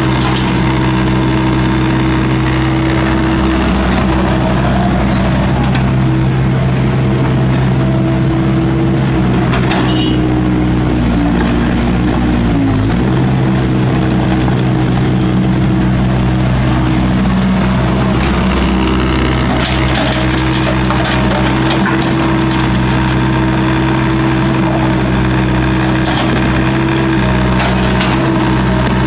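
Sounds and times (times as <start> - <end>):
excavator diesel engine running: 0.0 - 29.0
asphalt chunks clattering into truck bed: 18.2 - 23.2, 25.9 - 26.6, 27.5 - 28.6.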